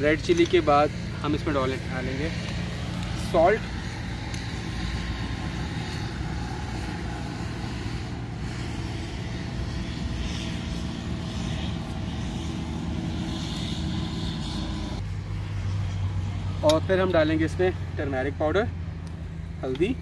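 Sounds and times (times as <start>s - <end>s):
low engine drone: 0.0s - 20.0s.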